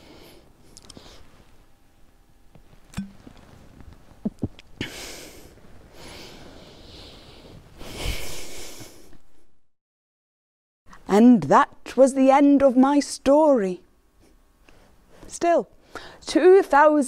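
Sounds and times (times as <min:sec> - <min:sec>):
glass bottle click: 0:02.9 - 0:03.2
woman swallowing: 0:04.2 - 0:04.7
heavy breaths through mouth: 0:04.8 - 0:09.2.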